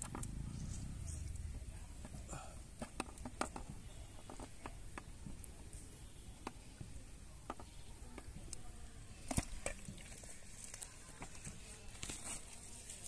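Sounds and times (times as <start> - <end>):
low outdoor rumble: 0.0 - 2.9.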